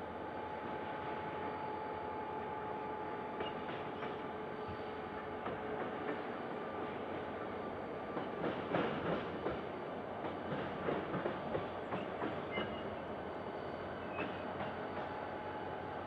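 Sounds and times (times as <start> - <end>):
train wheels clacking over rail joints: 3.4 - 4.2, 5.4 - 7.2, 8.1 - 12.9, 14.1 - 15.2
wheel squeals: 12.0 - 13.0.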